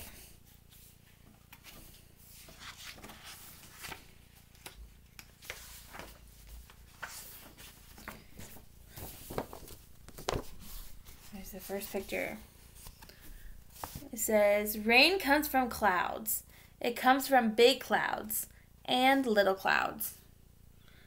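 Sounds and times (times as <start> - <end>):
paper pages rustling: 0.7 - 14.1.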